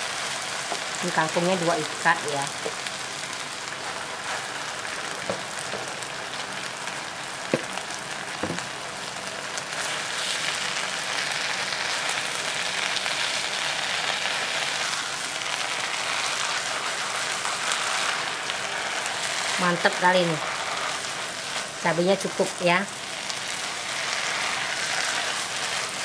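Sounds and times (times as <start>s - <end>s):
greens sizzling in a pan: 0.0s - 26.0s
spatula knocking against pan: 7.5s - 7.7s.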